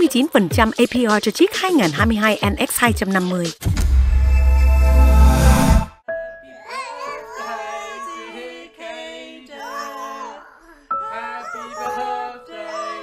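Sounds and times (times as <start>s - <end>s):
child singing: 6.4s - 13.0s.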